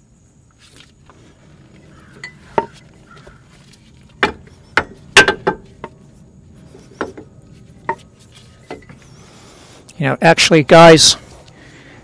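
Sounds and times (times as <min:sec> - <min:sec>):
metal tools clinking and knocking: 0:02.0 - 0:06.0, 0:06.7 - 0:09.1.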